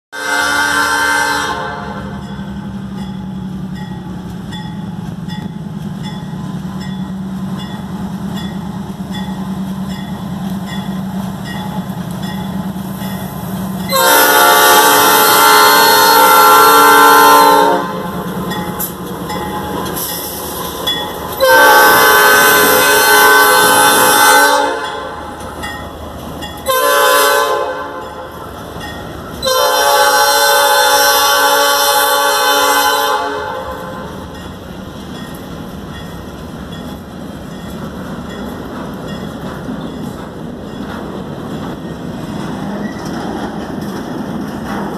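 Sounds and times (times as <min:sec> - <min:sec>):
locomotive air horn blasts: 0:00.1 - 0:02.2, 0:13.9 - 0:18.2, 0:21.4 - 0:25.2, 0:26.6 - 0:28.3, 0:29.4 - 0:34.2
freight cars rumbling and clattering: 0:18.0 - 0:21.5, 0:34.2 - 0:44.9.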